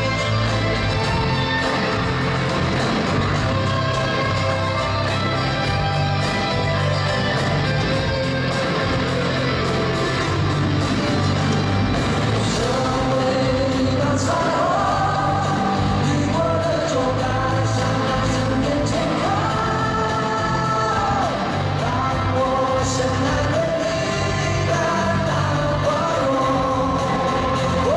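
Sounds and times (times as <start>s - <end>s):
pop-rock band playing: 0.0s - 27.9s
man singing: 12.4s - 27.9s.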